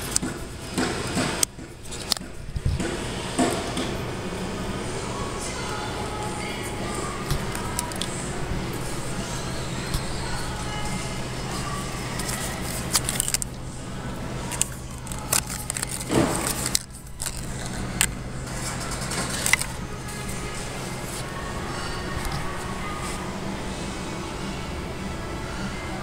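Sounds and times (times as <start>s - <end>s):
plastic decoration rattling and rustling: 0.0s - 2.8s, 7.3s - 23.2s
store background hum: 0.0s - 26.0s.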